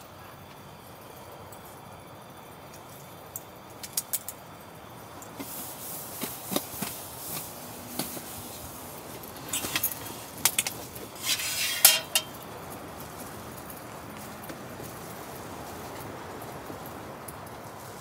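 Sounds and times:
folding table legs clattering: 9.4 - 12.4
metal stand clinking: 9.4 - 12.4.

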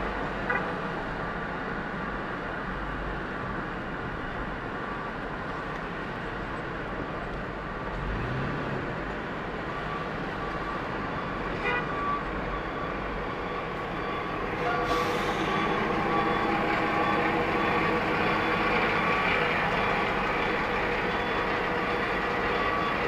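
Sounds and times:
city traffic noise: 0.0 - 23.0
truck hum alongside: 0.0 - 23.0
car horn toot: 11.6 - 12.0.

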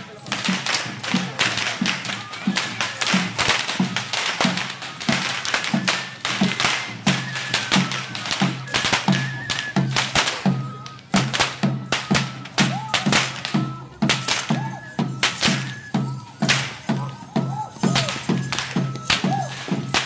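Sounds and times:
drum beating: 0.0 - 20.0
high flute melody: 0.1 - 20.0
whips cracking: 3.0 - 10.4, 14.1 - 15.8.

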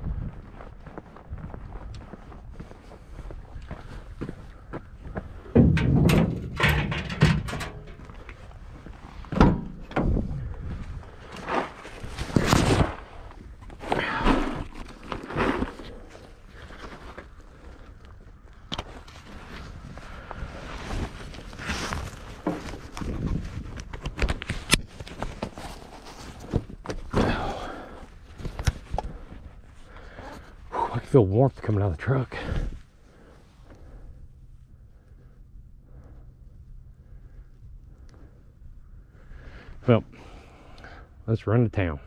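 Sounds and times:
thumps: 5.5 - 8.2, 9.2 - 10.4
gear knocking and rattling: 5.5 - 8.3
truck door opening: 5.6 - 7.9
clothing and gear rustling: 7.9 - 30.6.

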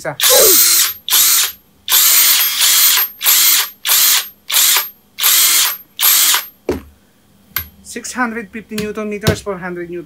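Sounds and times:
impact wrench bursts with whine: 0.2 - 6.6.

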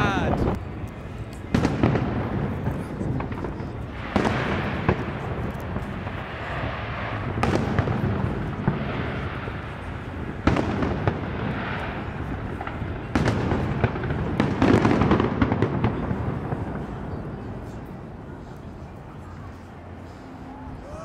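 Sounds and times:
fireworks crackling: 0.0 - 20.4
fireworks bangs: 1.4 - 17.8.

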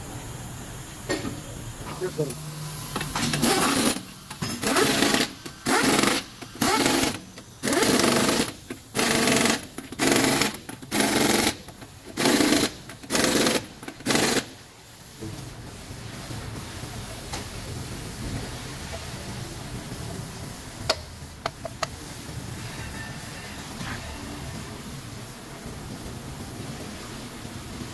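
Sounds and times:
impact wrench bursts: 2.9 - 14.6.

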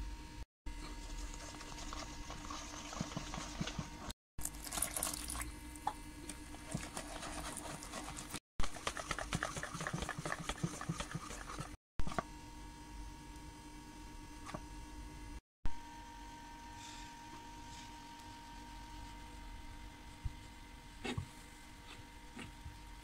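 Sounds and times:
wet batter mixing: 0.8 - 11.8.

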